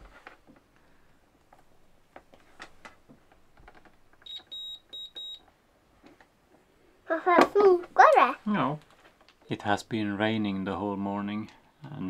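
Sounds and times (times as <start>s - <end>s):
multimeter beeping: 4.2s - 5.4s.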